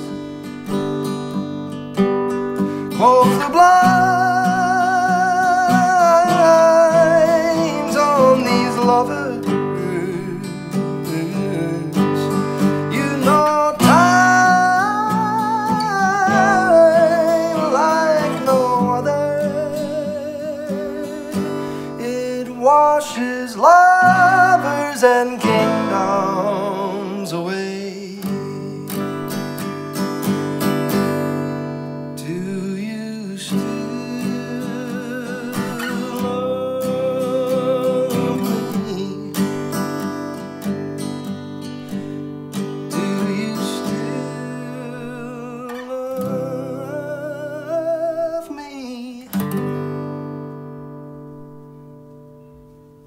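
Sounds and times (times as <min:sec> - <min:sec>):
acoustic guitar playing: 0:00.0 - 0:53.0
person singing wordless notes: 0:02.9 - 0:29.0, 0:32.2 - 0:39.5, 0:42.9 - 0:49.4.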